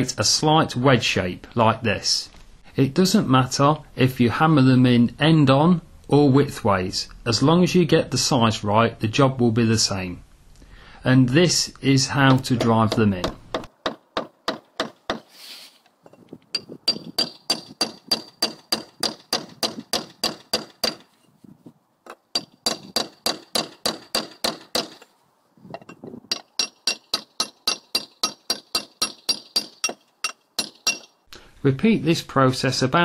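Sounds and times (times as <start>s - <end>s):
hammer striking steel chisel: 12.2s - 15.3s, 16.5s - 21.1s, 22.1s - 25.1s, 25.8s - 31.2s.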